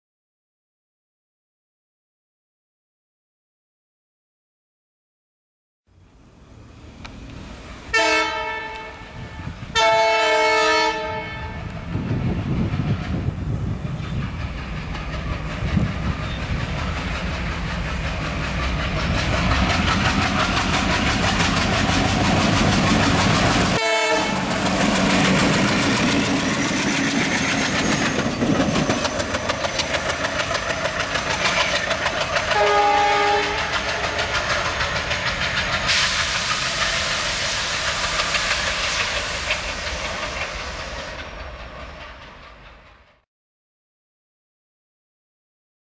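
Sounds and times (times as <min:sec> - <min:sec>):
diesel locomotive engines chugging: 0:05.9 - 0:43.2
train horn blasts: 0:07.9 - 0:11.8, 0:23.8 - 0:24.6, 0:32.5 - 0:34.3
wheels clattering over rail joints: 0:24.5 - 0:37.0.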